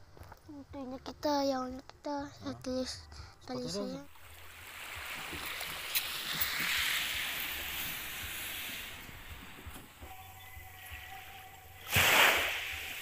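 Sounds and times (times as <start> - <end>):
water rushing hiss: 4.1 - 13.0.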